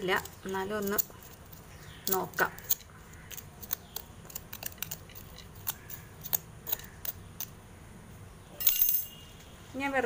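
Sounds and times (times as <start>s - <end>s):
fingers scratching dry soil: 0.0s - 7.2s.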